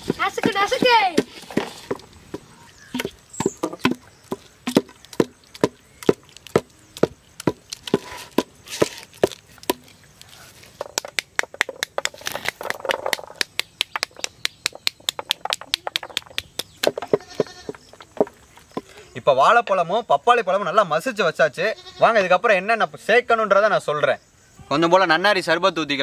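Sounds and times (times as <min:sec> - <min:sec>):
seeds tapping onto steel plate: 0:10.8 - 0:18.9.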